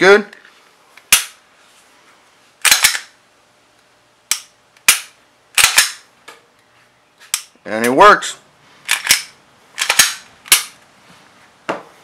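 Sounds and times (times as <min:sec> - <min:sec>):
pistol slide racking: 0:02.6 - 0:03.1, 0:08.9 - 0:10.8.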